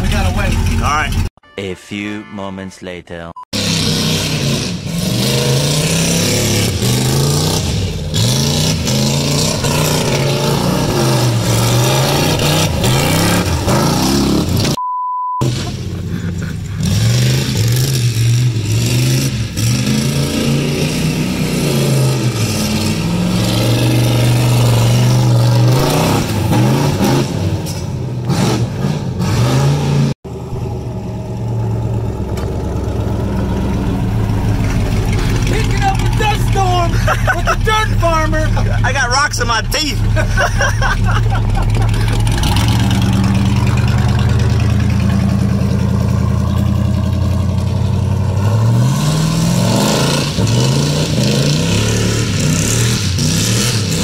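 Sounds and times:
truck engine revving: 0:03.6 - 0:14.8, 0:15.4 - 0:54.0
electronic beep: 0:14.8 - 0:15.5.

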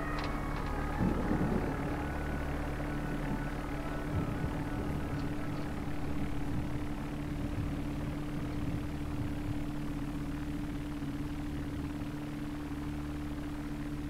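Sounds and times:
constant hum tone: 0:00.0 - 0:14.0
low mechanical drone: 0:00.0 - 0:14.0.

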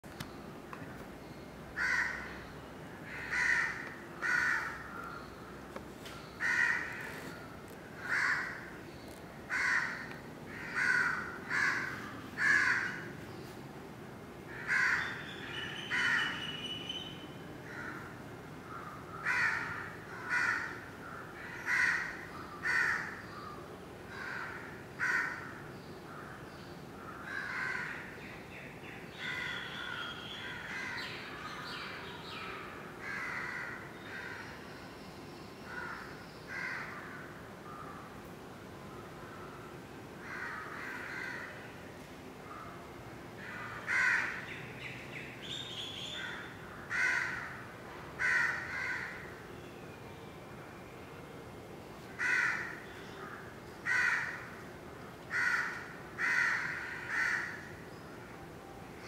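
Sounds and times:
crows cawing: 0:01.8 - 0:02.4, 0:03.0 - 0:05.2, 0:06.4 - 0:07.4, 0:08.0 - 0:08.8, 0:09.5 - 0:13.1, 0:14.5 - 0:15.2, 0:17.6 - 0:23.2, 0:24.1 - 0:26.4, 0:27.0 - 0:28.2, 0:29.1 - 0:31.3, 0:32.6 - 0:34.6, 0:35.7 - 0:38.1, 0:40.2 - 0:41.6, 0:43.4 - 0:44.5, 0:46.1 - 0:47.6, 0:48.2 - 0:49.3, 0:52.1 - 0:54.6, 0:55.3 - 0:57.8.

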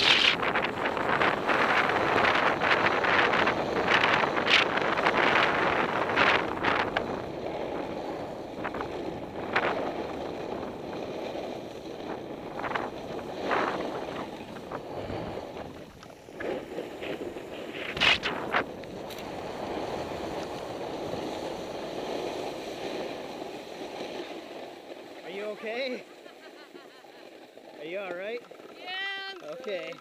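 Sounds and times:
wind on microphone: 0:00.0 - 0:25.2
skier crashing: 0:00.0 - 0:27.8
skis scraping on snow: 0:00.0 - 0:30.0.

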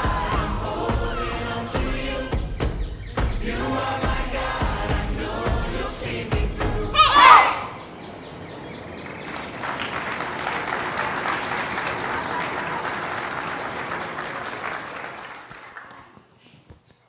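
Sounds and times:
congregation applauding: 0:09.0 - 0:16.2.

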